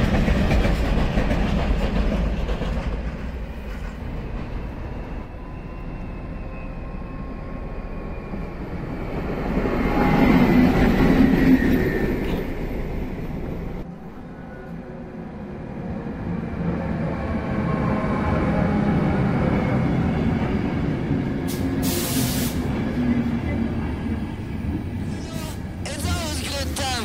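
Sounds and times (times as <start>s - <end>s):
train wheels clattering over rails: 0.0s - 5.0s
diesel locomotive engine working: 0.0s - 27.0s.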